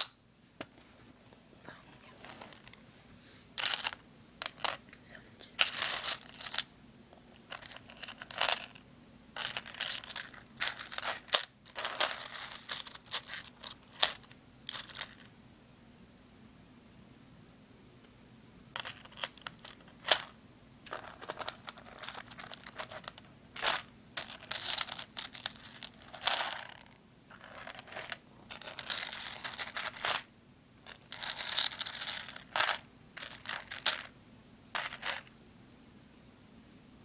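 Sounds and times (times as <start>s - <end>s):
scratchy rubbing and scraping: 5.6s - 6.7s, 9.4s - 15.3s, 20.9s - 30.2s, 30.9s - 34.1s.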